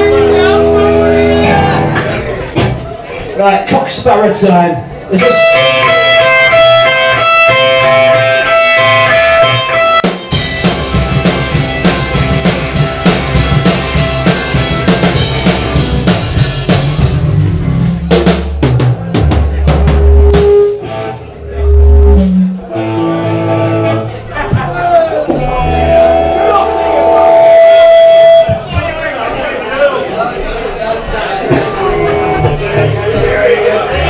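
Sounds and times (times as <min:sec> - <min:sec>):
drum kit close up: 0:00.0 - 0:03.0, 0:05.2 - 0:29.1, 0:31.0 - 0:34.0
punk rock band playing: 0:00.0 - 0:03.0, 0:05.1 - 0:29.0, 0:31.2 - 0:34.0
electric guitar: 0:05.2 - 0:18.0, 0:19.9 - 0:24.2, 0:25.4 - 0:28.5.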